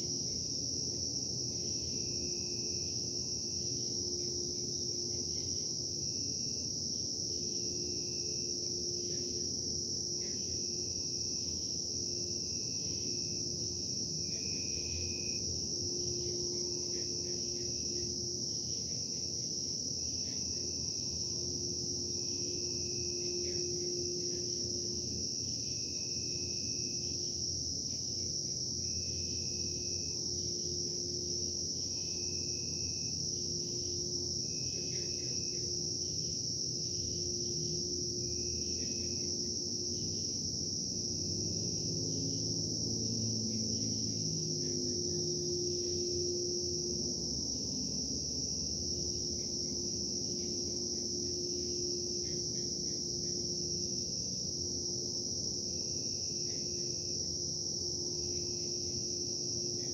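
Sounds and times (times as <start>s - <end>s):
crickets chirping: 0.0s - 59.9s
low hum and rumble: 32.9s - 55.8s.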